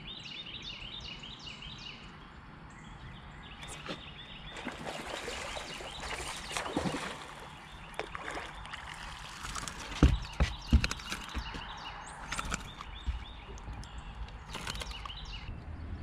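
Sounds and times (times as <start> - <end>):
water splashing: 3.6 - 15.2
fish thumping on boat deck: 9.1 - 15.0.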